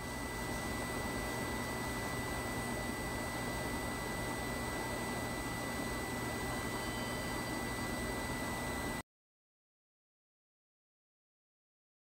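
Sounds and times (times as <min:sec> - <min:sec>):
electrical hum and hiss: 0:00.0 - 0:09.0
faint high-pitched whine: 0:00.0 - 0:09.0.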